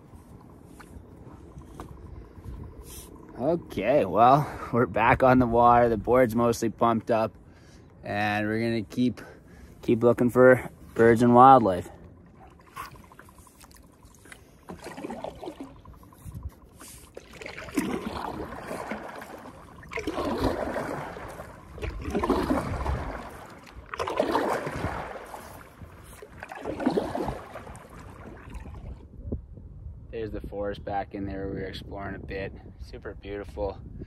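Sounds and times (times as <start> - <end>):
paddle strokes splashing water: 10.6 - 29.0.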